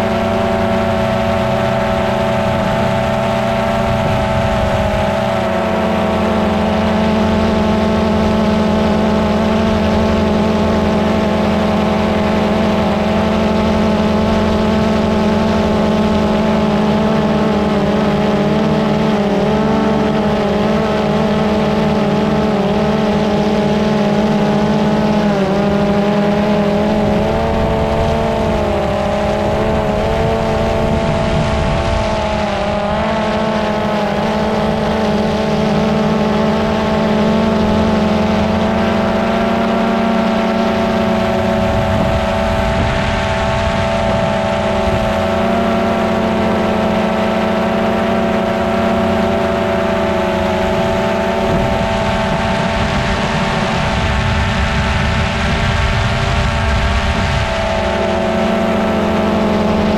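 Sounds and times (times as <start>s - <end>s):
drone propellers whining: 0.0s - 59.9s.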